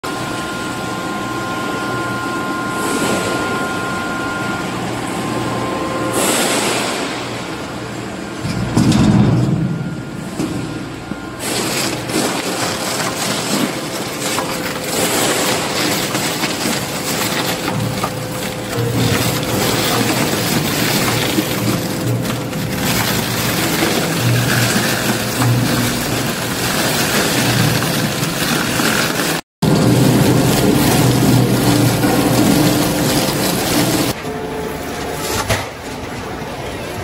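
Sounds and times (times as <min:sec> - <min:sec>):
tire shredder tearing tire: 0:11.4 - 0:34.2.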